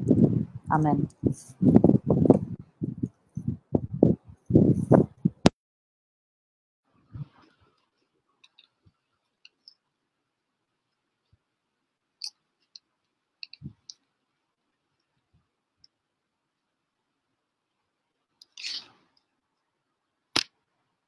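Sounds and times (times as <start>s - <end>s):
faint clicks of handling: 7.3s - 9.8s, 12.2s - 14.1s.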